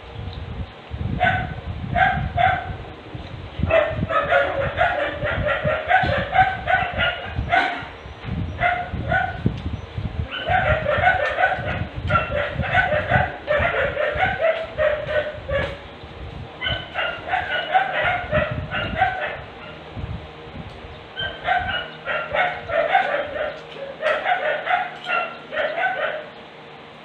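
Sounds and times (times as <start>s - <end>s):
dog barking: 1.2s - 2.8s, 3.7s - 7.9s, 8.6s - 9.4s, 10.3s - 15.8s, 16.6s - 19.8s, 21.2s - 26.3s.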